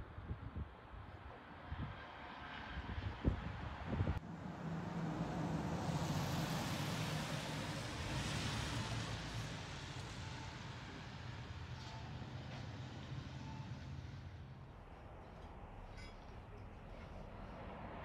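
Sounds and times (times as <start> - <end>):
car passing: 1.7 - 11.8.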